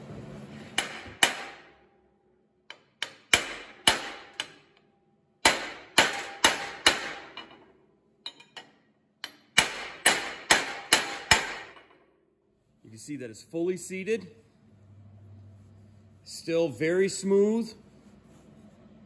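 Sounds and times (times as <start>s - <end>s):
hammer striking metal socket: 5.5s - 11.9s.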